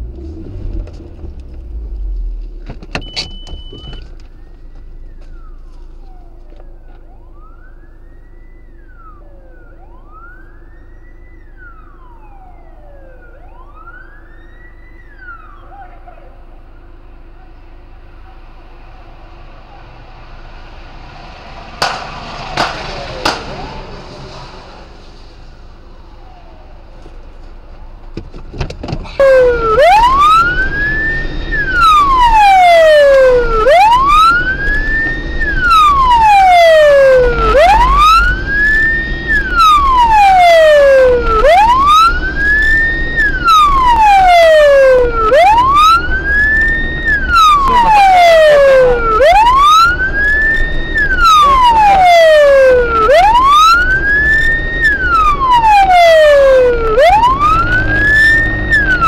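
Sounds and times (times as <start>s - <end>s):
car engine rumble: 0.0s - 59.0s
police siren wailing: 3.2s - 59.0s
sharp knocks: 21.8s - 23.5s.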